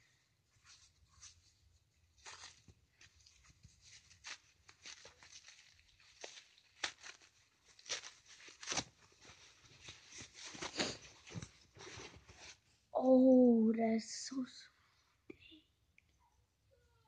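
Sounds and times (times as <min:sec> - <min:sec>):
paper wrapping rustling and tearing: 0:02.2 - 0:12.6.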